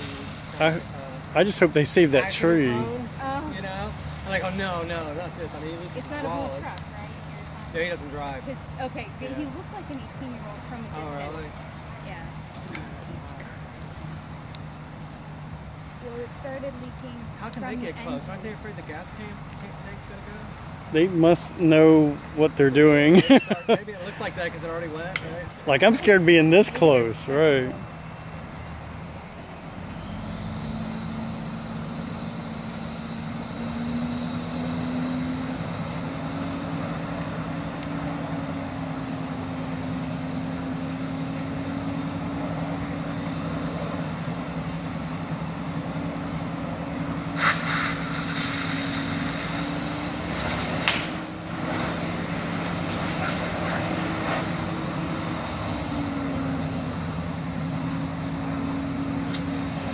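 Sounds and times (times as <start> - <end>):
diesel engine droning: 0.0 - 59.9
high pump whine: 29.8 - 59.9
sharp pops: 47.3 - 52.1.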